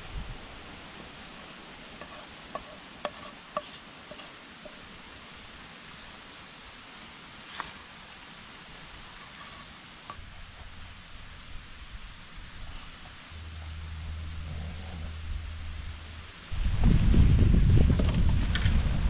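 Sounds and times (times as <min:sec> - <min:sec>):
soft steady hiss: 0:00.0 - 0:19.0
spatula scraping a frying pan: 0:02.0 - 0:04.8, 0:09.0 - 0:10.2.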